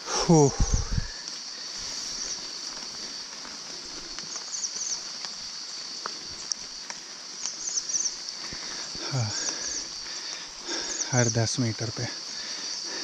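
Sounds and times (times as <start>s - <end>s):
high-pitched insect drone: 0.0s - 13.0s.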